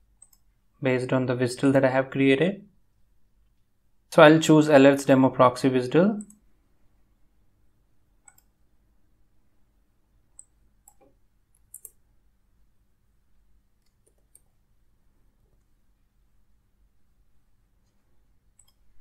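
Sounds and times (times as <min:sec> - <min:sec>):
mouse and keyboard clicks: 0:08.2 - 0:08.5, 0:10.4 - 0:12.0, 0:18.6 - 0:18.8.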